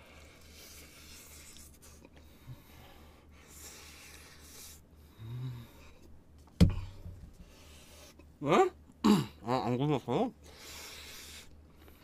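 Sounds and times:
noisy breathing out: 0.0s - 6.1s, 10.4s - 12.0s.

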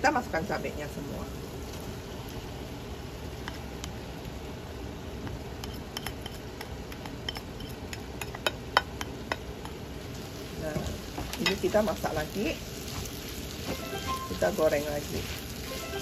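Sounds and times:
frying sizzle in a pan: 0.0s - 16.0s
spatula tapping plate and pan: 5.6s - 9.8s.

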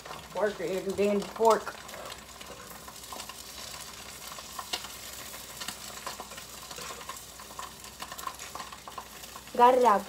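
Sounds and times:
eggs sizzling in a pan: 0.0s - 10.0s.

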